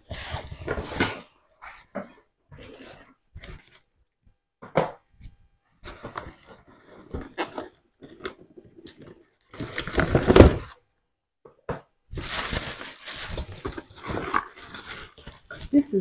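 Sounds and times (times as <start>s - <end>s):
plastic wrapping crinkling: 12.1s - 16.0s.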